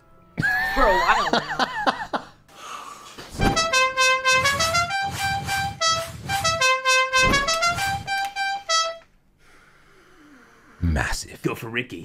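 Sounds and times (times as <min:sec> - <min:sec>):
deep thump: 0:07.2 - 0:08.0.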